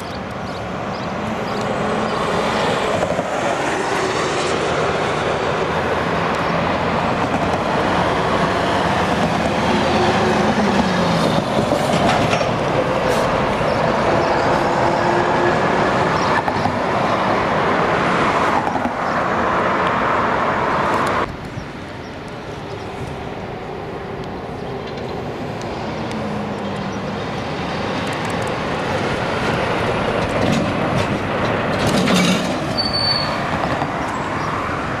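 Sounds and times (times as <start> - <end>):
heavy road traffic passing: 0.0 - 35.0
truck pulling trailer: 4.5 - 18.4, 25.8 - 35.0.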